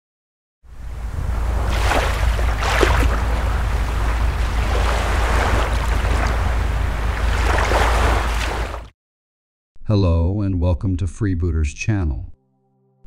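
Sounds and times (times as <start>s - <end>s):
sea waves surf washing in: 0.7s - 8.9s
wind: 0.7s - 8.9s.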